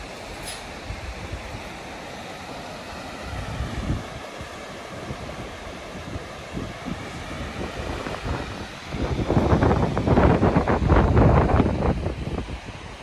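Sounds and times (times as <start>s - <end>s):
water spilling over weir: 0.0s - 13.0s
wind buffeting microphone: 2.9s - 13.0s.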